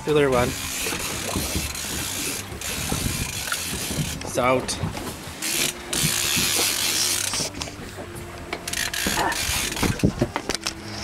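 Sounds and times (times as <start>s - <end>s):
idling boat motor hum: 0.0s - 11.0s
wind and water noise: 0.0s - 11.0s
fishing reel ratcheting clicks: 0.3s - 4.3s, 5.4s - 7.5s, 8.7s - 10.8s.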